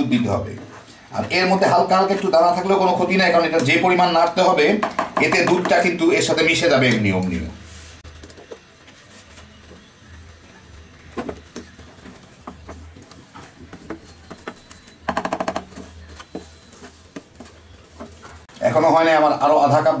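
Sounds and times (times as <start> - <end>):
rapid clattering taps: 4.8 - 6.0.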